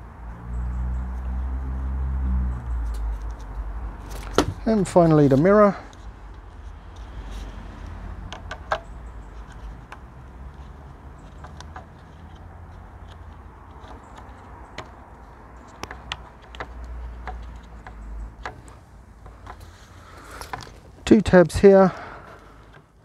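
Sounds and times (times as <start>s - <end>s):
small plastic clicks and taps: 11.2s - 19.7s.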